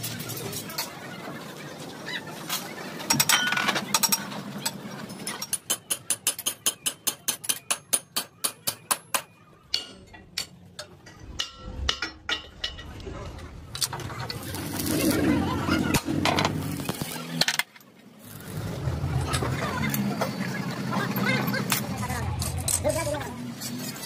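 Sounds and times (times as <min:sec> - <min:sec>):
hammer striking steel: 0:05.6 - 0:12.8
heavy steel parts clanking: 0:09.7 - 0:14.4.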